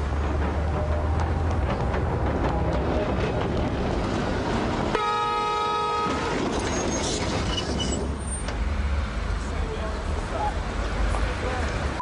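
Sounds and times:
tram running on track: 0.0s - 12.0s
tram horn blast: 4.9s - 6.6s.

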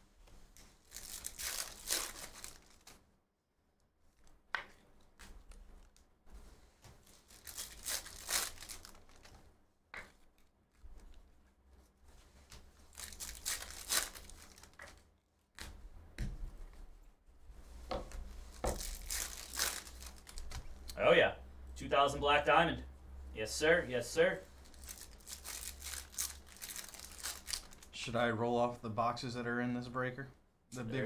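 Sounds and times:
foil wrappers torn and crinkled: 0.8s - 3.0s, 7.0s - 9.3s, 12.8s - 14.8s, 18.7s - 20.9s, 24.7s - 27.9s.

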